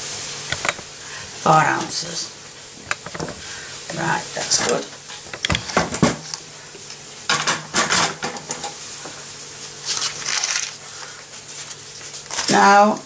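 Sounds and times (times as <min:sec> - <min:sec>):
utensils clattering and scraping: 0:02.9 - 0:06.4, 0:07.3 - 0:08.8, 0:09.8 - 0:10.8.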